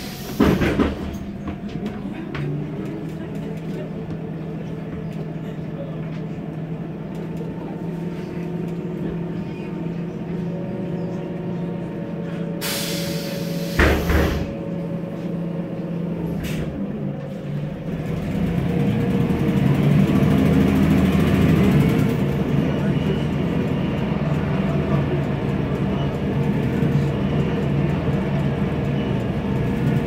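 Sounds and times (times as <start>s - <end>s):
compressed air hissing: 0.0s - 0.6s, 12.6s - 14.5s
bus engine idling: 0.0s - 30.0s
thump: 13.8s - 14.5s.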